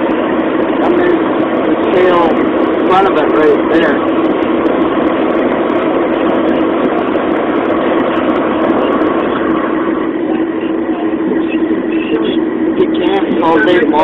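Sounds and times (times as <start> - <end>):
car road noise: 0.0 - 14.0
steady hum: 0.0 - 14.0
tyre and engine drone: 0.0 - 14.0.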